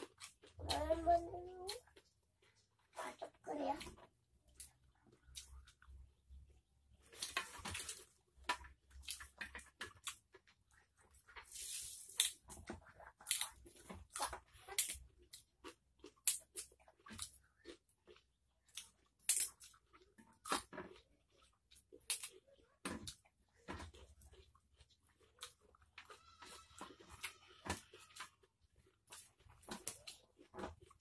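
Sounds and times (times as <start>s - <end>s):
chewing raw vegetables: 0.0s - 31.0s
stalks snapped and torn: 19.2s - 19.6s.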